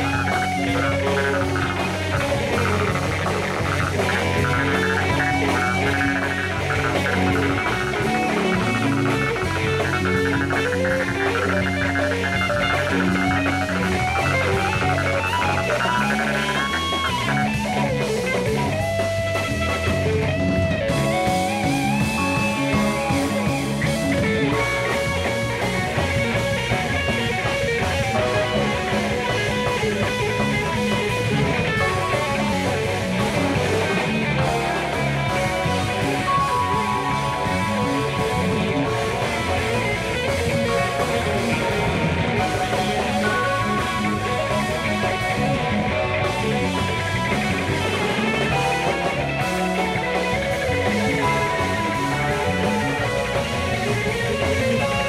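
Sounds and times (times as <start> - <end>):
sliding lead line: 0.0 - 18.8
drum kit: 0.0 - 55.0
electric guitar: 0.0 - 55.0
electric keyboard: 0.0 - 55.0.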